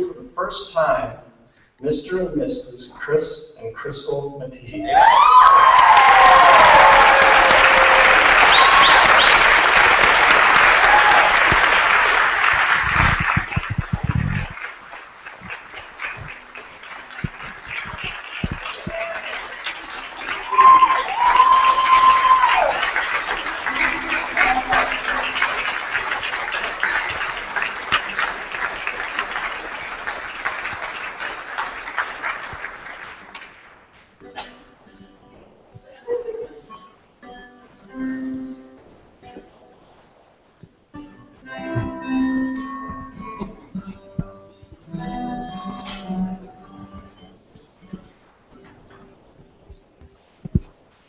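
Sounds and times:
whoops: 0:04.8 - 0:09.6, 0:10.6 - 0:11.6, 0:18.8 - 0:19.5, 0:20.3 - 0:25.4
guests applauding and cheering: 0:04.8 - 0:33.8
low thumps: 0:12.8 - 0:14.6.

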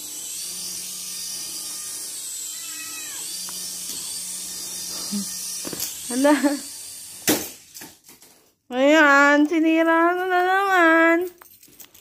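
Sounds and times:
toy motor and propeller buzzing: 0:00.0 - 0:08.3
cat meowing: 0:01.6 - 0:03.3.

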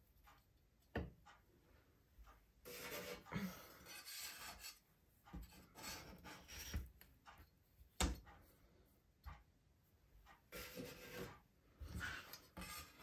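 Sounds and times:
metal knife scraping dough: 0:02.6 - 0:07.1, 0:10.5 - 0:13.0.

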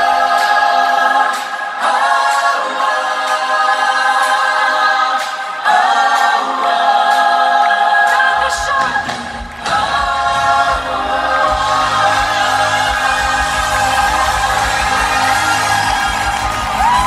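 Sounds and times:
crowd singing pop chorus: 0:00.0 - 0:17.0.

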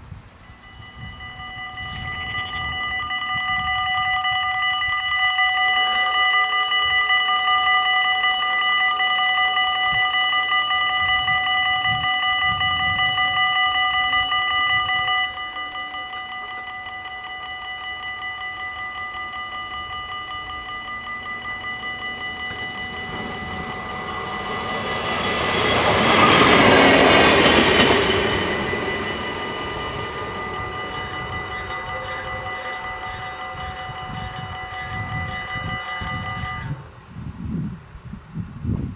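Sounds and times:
level crossing bells ringing: 0:00.5 - 0:36.8.

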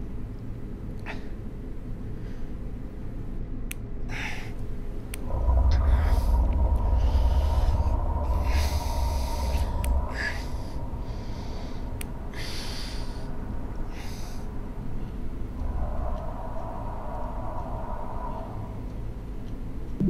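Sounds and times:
low rumbling drone: 0:04.6 - 0:20.0
man breathing hard: 0:05.3 - 0:14.8
faint clicks: 0:13.8 - 0:20.0.

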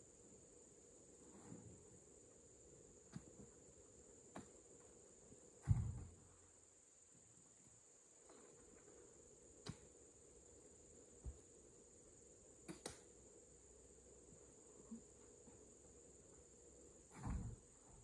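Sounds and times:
fruit bunches thudding into truck: 0:05.6 - 0:06.3.

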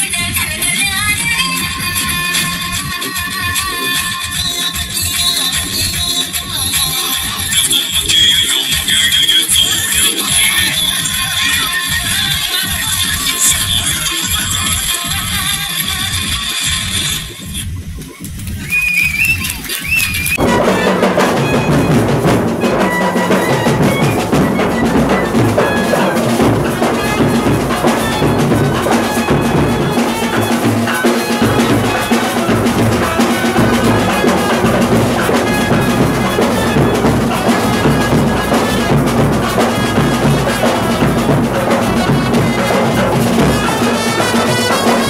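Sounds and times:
pounding drums: 0:00.0 - 0:45.0
trumpets playing melody: 0:20.4 - 0:45.0.

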